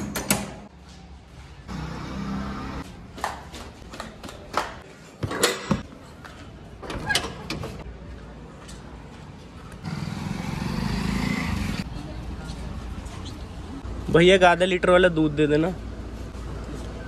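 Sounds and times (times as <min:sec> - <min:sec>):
street traffic noise: 0:00.0 - 0:17.0
glass door opening and shutting: 0:06.8 - 0:07.9.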